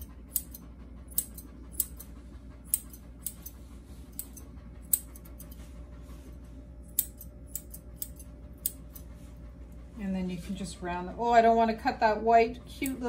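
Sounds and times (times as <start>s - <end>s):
scissors snipping fur: 0.0s - 5.6s, 6.8s - 9.1s, 12.8s - 13.0s.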